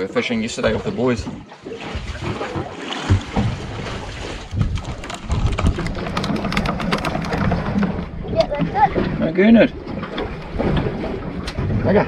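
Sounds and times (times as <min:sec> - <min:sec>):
water lapping against boat hull: 0:00.0 - 0:12.0
crackling drips and splashes: 0:00.9 - 0:09.1
wind rumble on microphone: 0:03.4 - 0:12.0.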